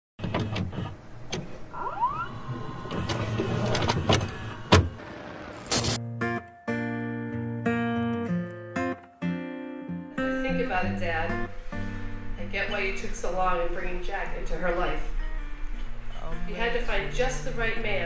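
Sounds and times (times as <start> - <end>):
tape mechanism motor whir: 0.2 - 6.0
short rising whine: 1.7 - 6.0
soft guitar music: 6.0 - 18.0.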